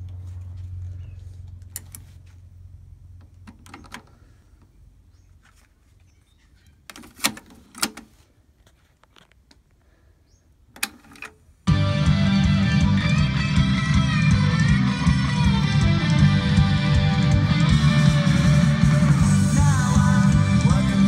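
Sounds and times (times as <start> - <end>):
cassette deck plastic clicks: 6.9 - 8.1, 10.8 - 11.4.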